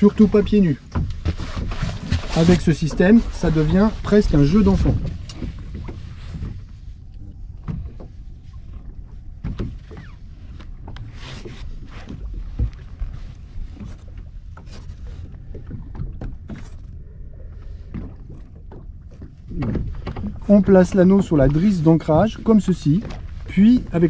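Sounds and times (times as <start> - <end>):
low wind and water rumble: 0.0 - 24.0
anchor line knocks and clatters: 0.8 - 4.0.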